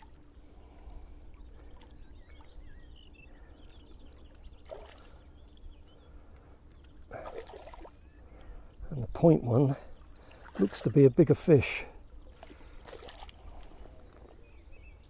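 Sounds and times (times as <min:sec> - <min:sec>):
low steady rumble: 0:00.0 - 0:11.2
fish splashing in water: 0:04.6 - 0:05.3, 0:07.1 - 0:08.0, 0:12.3 - 0:13.9.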